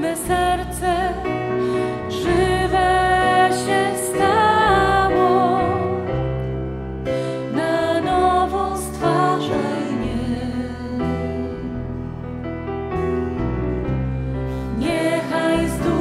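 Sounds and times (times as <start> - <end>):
instrumental accompaniment: 0.0 - 16.0
person singing worship song: 7.2 - 11.8, 14.6 - 16.0.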